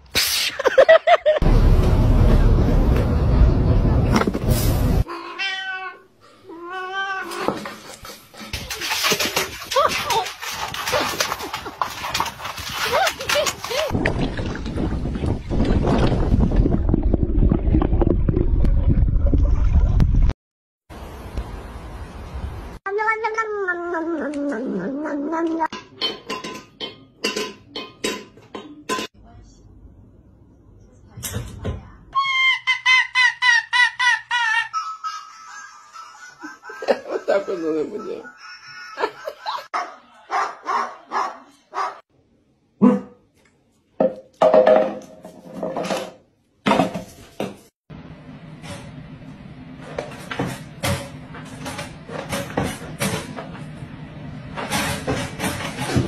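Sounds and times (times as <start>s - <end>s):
cat yowling: 5.1s - 7.4s
dogs barking: 38.0s - 42.0s, 42.8s - 43.2s.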